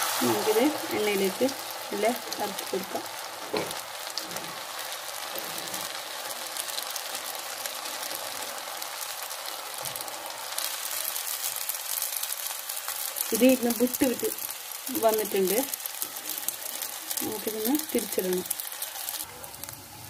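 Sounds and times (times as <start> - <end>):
hot oil sizzling and crackling: 0.0 - 20.0.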